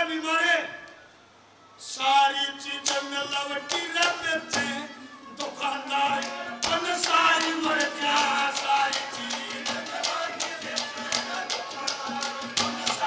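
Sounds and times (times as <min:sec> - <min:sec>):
drum strokes: 0:06.2 - 0:13.0.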